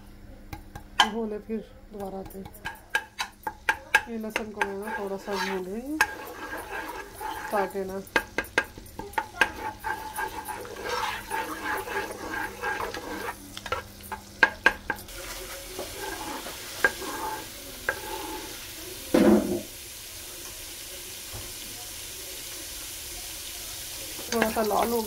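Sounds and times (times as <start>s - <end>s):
spatula clicking and scraping pan: 2.0s - 18.6s, 24.1s - 25.0s
garlic sizzling in hot oil: 2.5s - 25.0s.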